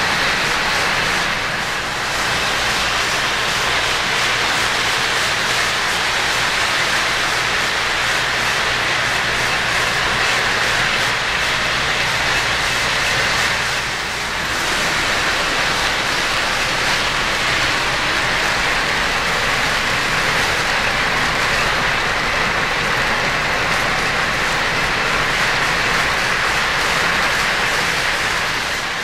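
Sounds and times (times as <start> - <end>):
model train wheels rattling on rails: 0.0 - 29.0.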